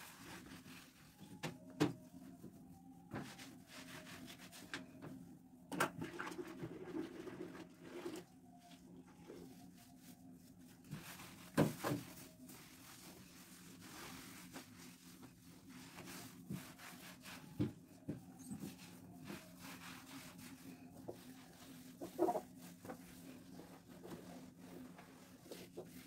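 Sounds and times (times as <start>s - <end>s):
cloth rubbing on wooden door: 0.0s - 4.8s, 9.4s - 26.0s.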